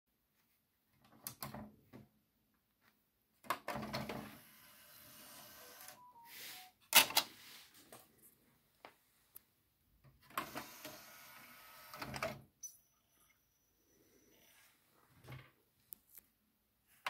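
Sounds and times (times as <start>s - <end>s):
disc tray motor whirring: 10.4s - 12.1s.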